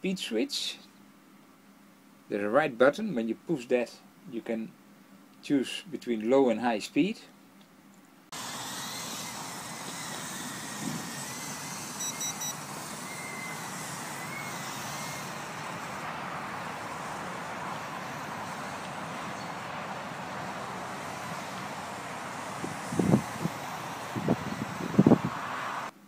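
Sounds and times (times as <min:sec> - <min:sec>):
quadcopter motors whining: 0:08.3 - 0:25.9
quick high beeps: 0:12.0 - 0:13.6
wind on microphone: 0:22.2 - 0:25.9.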